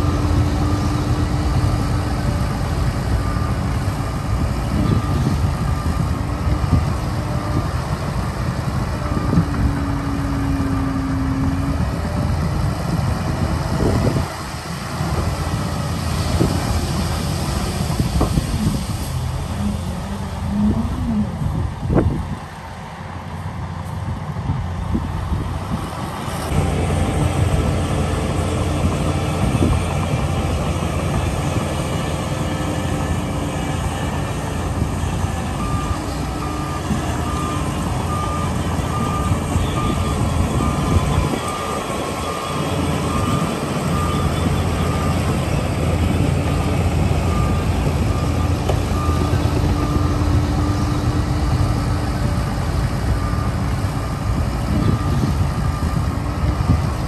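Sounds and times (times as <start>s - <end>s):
diesel engines running: 0.0s - 57.0s
reversing alarm beeping: 26.6s - 56.7s.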